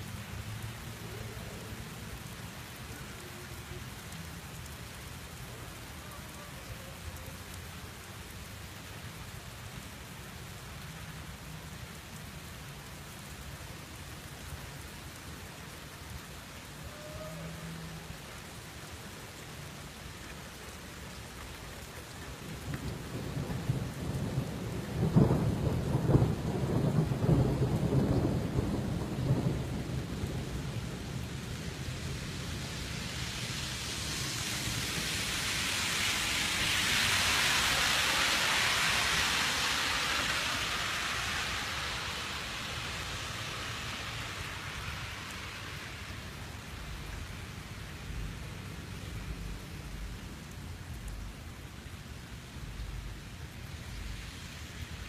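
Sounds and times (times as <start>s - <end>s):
steady rain: 0.0s - 55.0s
thunder rumbling: 22.7s - 32.3s.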